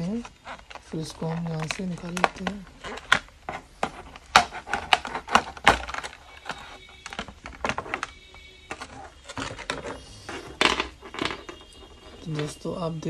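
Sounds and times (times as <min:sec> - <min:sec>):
plastic tray clicking and crackling: 0:00.0 - 0:13.0.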